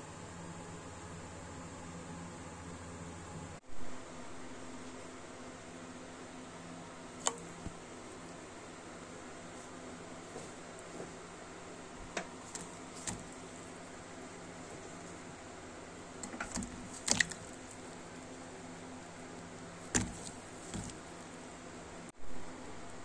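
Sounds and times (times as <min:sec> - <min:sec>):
water splashing: 0:16.2 - 0:17.8, 0:19.8 - 0:21.3.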